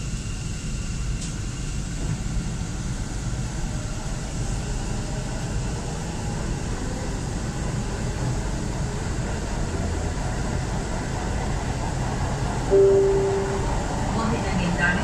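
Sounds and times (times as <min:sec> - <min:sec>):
train rumbling inside coach: 0:00.0 - 0:15.0.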